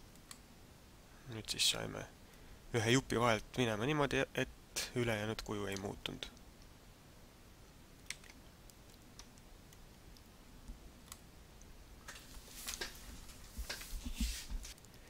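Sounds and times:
mouse and keyboard clicks: 8.0 - 10.3.

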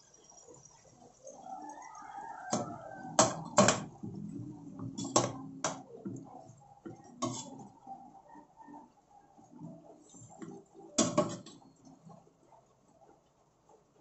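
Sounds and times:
sauce simmering: 0.0 - 7.9
spatula scraping pot: 2.5 - 7.9.

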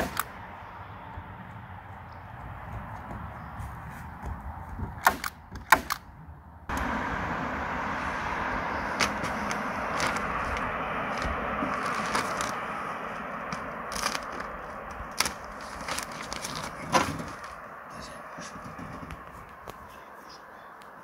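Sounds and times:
sharp clicks: 5.0 - 6.1
plastic sheet crinkling: 9.0 - 12.7, 13.9 - 17.6.

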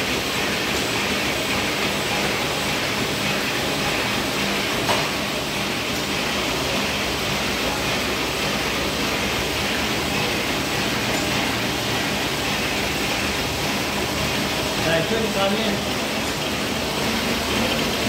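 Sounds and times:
printing press running: 0.0 - 18.0.

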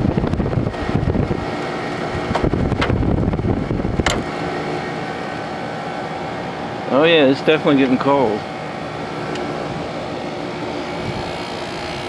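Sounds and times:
air conditioner humming: 0.0 - 12.0
low buffeting: 0.0 - 12.0.

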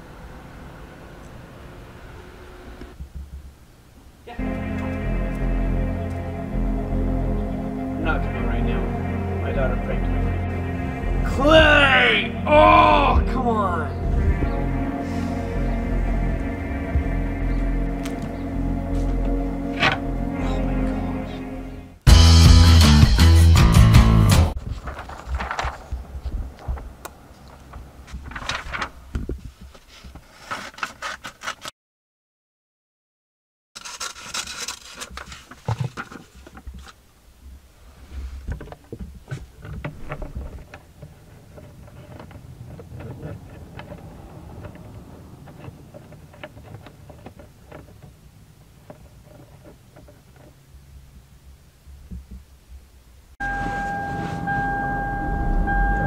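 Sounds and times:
hands handling car mirror: 38.4 - 50.6.

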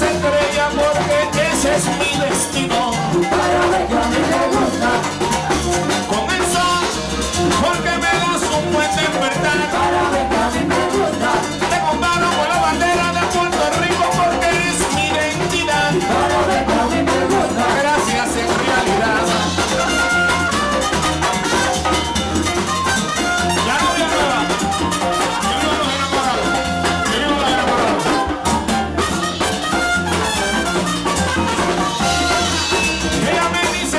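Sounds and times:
person singing: 0.0 - 5.3, 6.1 - 19.7, 25.5 - 28.2, 33.1 - 33.9
brass: 0.0 - 33.9
drum kit: 0.0 - 33.9
frame drum: 0.0 - 33.9
live band playing latin dance music: 0.0 - 33.9.

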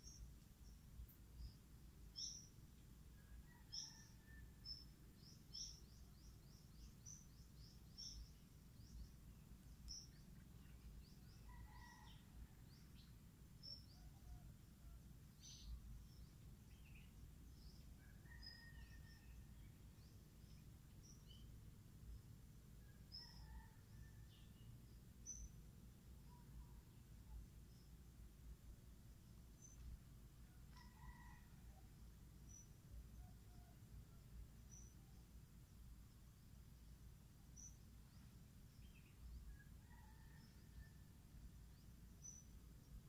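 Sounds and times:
low steady rumble: 12.2 - 18.3, 23.8 - 30.8.

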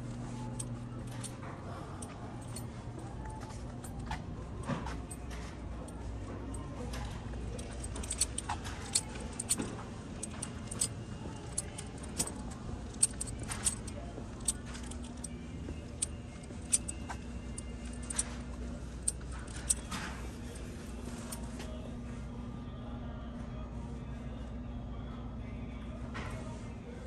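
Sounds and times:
metal items jingling: 0.0 - 21.5
steady low hum: 0.0 - 27.0.

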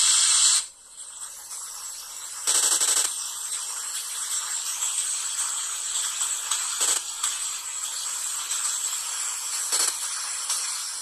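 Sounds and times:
harsh static hiss: 0.0 - 0.8, 2.4 - 3.5, 5.7 - 11.0
rapid rattling crackle: 2.4 - 3.2, 4.7 - 11.0.

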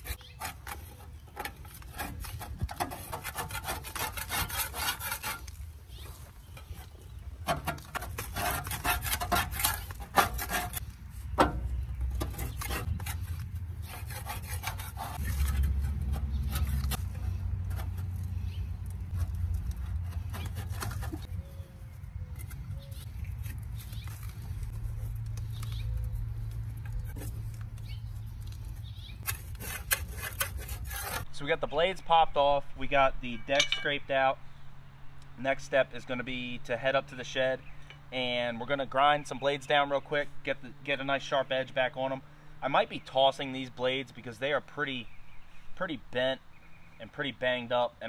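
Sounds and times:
metal scraper scraping steel deck: 0.0 - 5.6, 7.4 - 21.3, 28.8 - 31.3.

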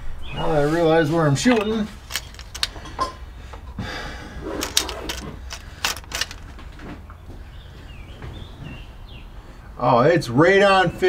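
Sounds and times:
gear clicking and knocking: 1.6 - 3.0, 4.6 - 6.8.

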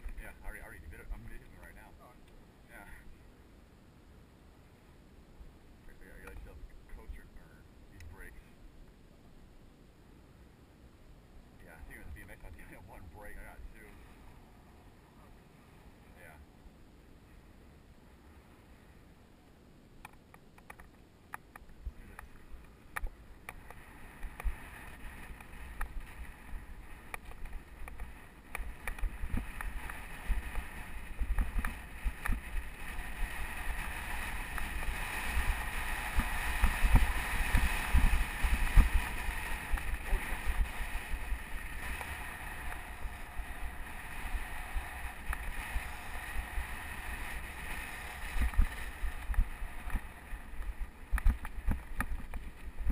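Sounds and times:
wind rumbling on microphone: 0.0 - 3.3, 10.3 - 19.4, 20.0 - 52.9
bike clicks and rattles: 20.0 - 52.9
bike tyres on dirt trail: 20.2 - 52.9.

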